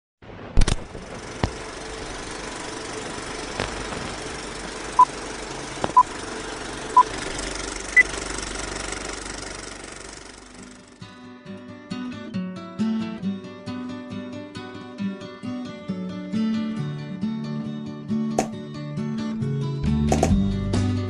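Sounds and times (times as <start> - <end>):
film crackle clicks: 0.6 - 1.7, 3.4 - 4.6
film projector running: 0.6 - 11.0.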